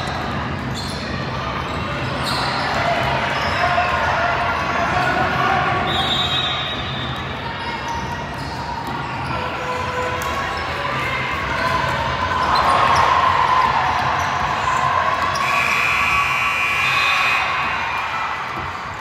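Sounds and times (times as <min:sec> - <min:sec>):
shoe squeaks: 0:00.7 - 0:02.8, 0:05.9 - 0:09.7.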